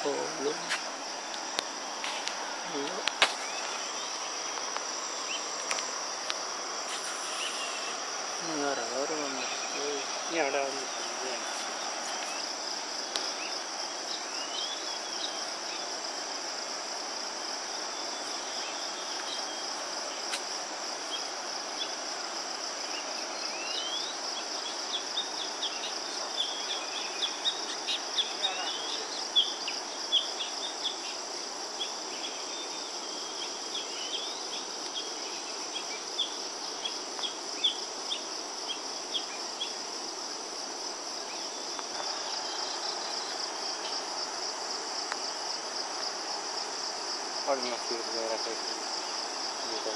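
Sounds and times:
insects chorus pulsing: 0.0 - 49.9.

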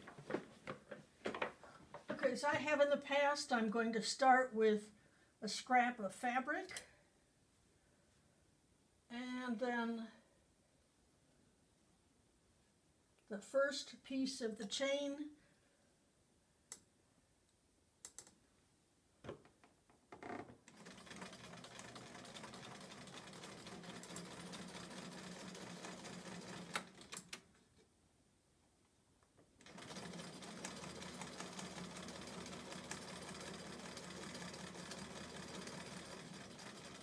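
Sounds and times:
sewing machine stitching: 20.6 - 27.4, 29.6 - 37.0.

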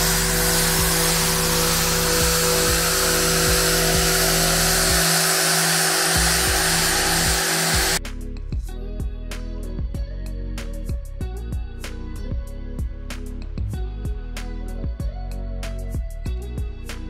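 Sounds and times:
electric sander running: 0.0 - 8.0.

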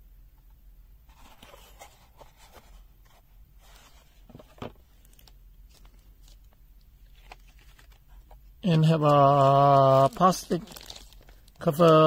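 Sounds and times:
plastic wrapping rustling: 3.6 - 12.0.

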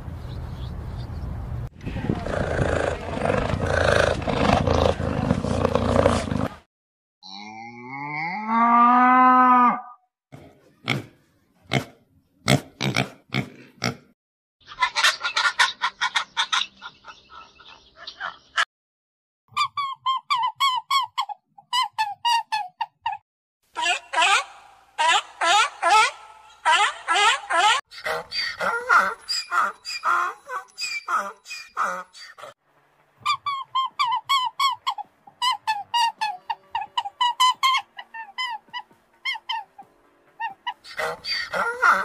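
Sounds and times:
animal calls: 33.2 - 42.0.

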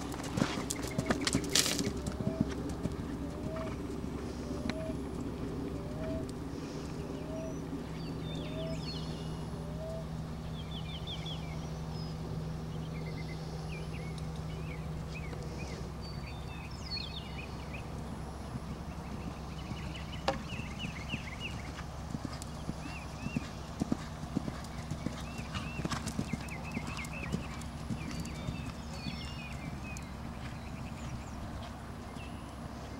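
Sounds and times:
horse hoofbeats on sand: 0.0 - 3.8, 19.2 - 32.9
birds chirping: 0.0 - 32.9
bird calling: 0.3 - 11.8, 15.2 - 32.5.

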